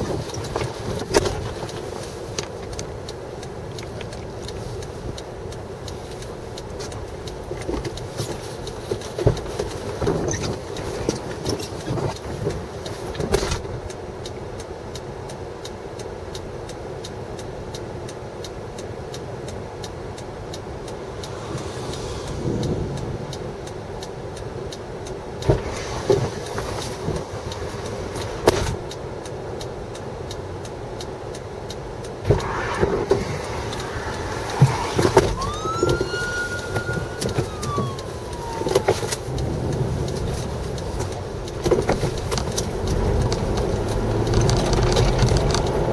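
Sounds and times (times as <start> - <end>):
rushing outdoor background noise: 0.0 - 45.9
siren wailing: 33.4 - 39.8.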